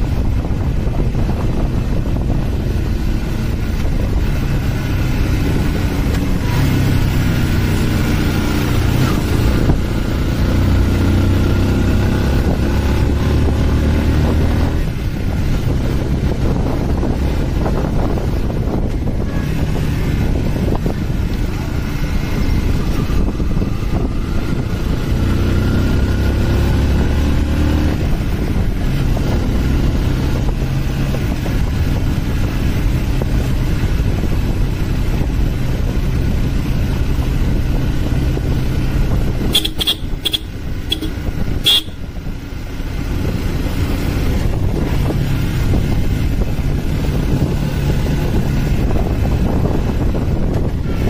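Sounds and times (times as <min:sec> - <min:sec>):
motorcycle engine running: 0:00.0 - 0:51.0
wind rushing over microphone: 0:00.0 - 0:51.0
short sharp high-pitched sounds: 0:39.5 - 0:42.0.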